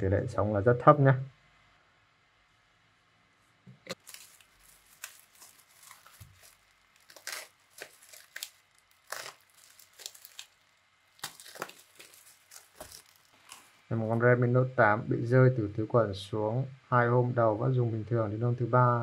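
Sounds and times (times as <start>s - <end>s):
bubble wrap crinkling: 3.9s - 14.2s.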